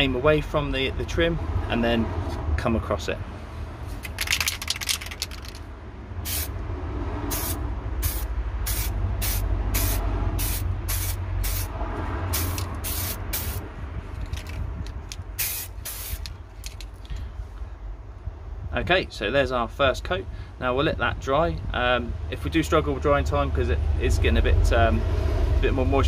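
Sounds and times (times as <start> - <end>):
aerosol can spraying: 6.3 - 6.5, 7.3 - 11.7, 12.3 - 13.6, 15.4 - 16.3.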